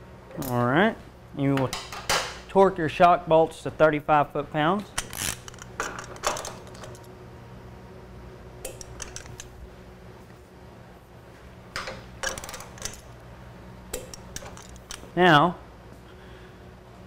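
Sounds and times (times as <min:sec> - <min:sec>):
torque wrench clicking: 0:08.6 - 0:09.5, 0:13.9 - 0:15.1.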